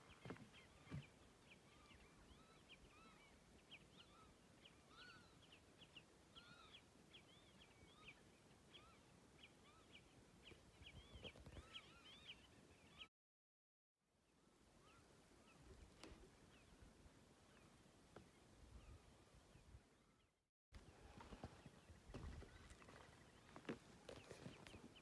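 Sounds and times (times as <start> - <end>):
birds chirping: 0.0 - 13.1.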